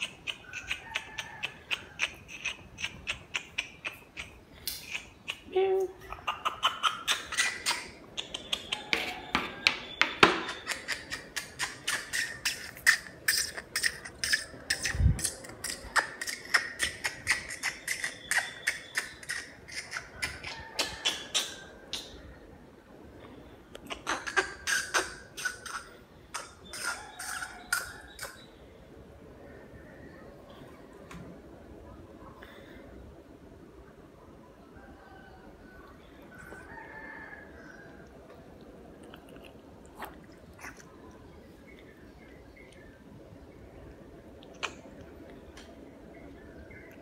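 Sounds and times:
cat chewing and smacking: 38.6s - 41.2s.

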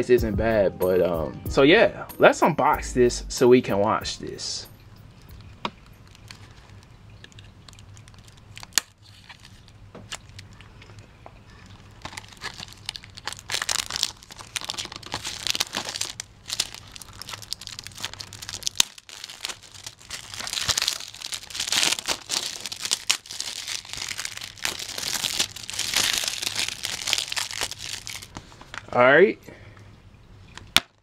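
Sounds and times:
plastic shrink wrap crinkling: 5.2s - 29.0s.

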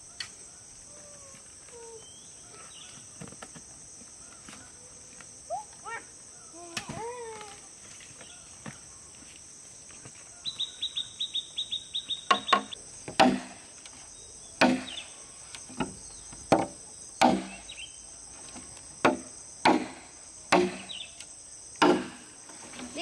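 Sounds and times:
crickets chirring: 0.0s - 23.0s
tool knocking on wood: 12.3s - 13.5s.

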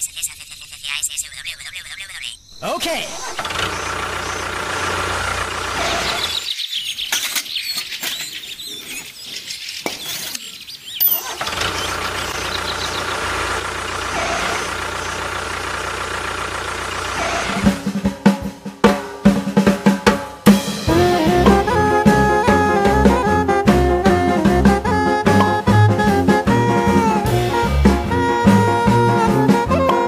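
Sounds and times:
small motor humming and whining: 3.3s - 6.4s, 11.4s - 17.8s.

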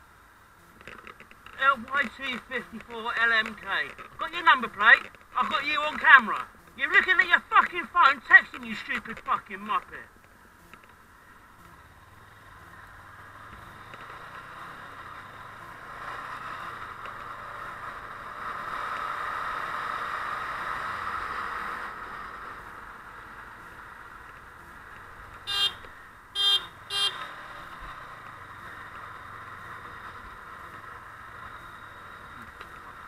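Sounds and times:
motorcycle engine: 0.0s - 33.0s
wind: 0.0s - 33.0s
horn toots: 25.4s - 25.8s, 26.4s - 27.4s.

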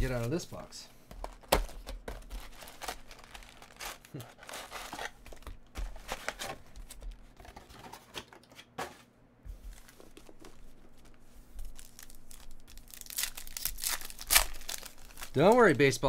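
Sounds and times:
foil wrappers crinkling: 0.0s - 8.0s, 9.6s - 16.0s
foil pack tearing open: 2.3s - 5.2s, 11.6s - 15.8s.

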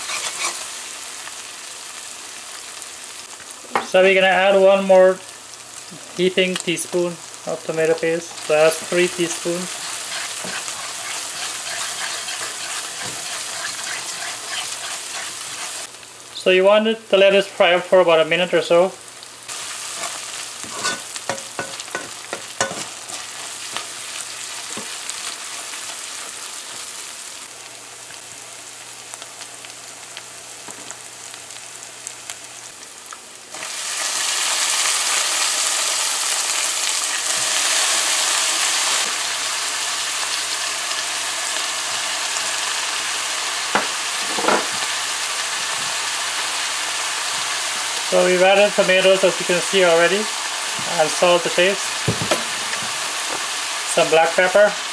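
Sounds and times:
spoon scraping a pot: 0.0s - 0.6s, 9.6s - 15.9s, 20.0s - 23.9s
food sizzling in hot oil: 0.0s - 16.4s, 17.3s - 54.9s.

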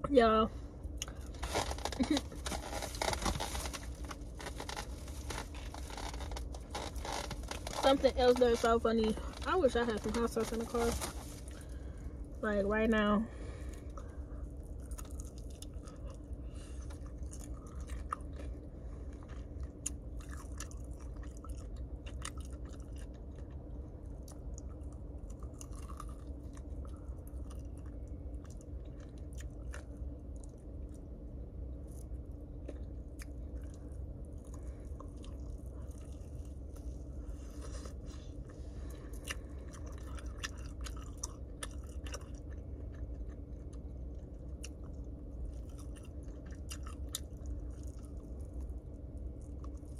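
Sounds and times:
steady low hum: 0.0s - 49.9s
person chewing food: 13.6s - 49.9s
crunchy bites: 14.7s - 31.0s.

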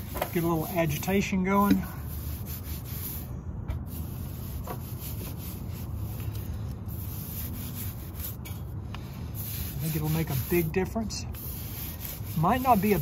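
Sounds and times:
bristle brush scrubbing a wheel: 0.0s - 13.0s.

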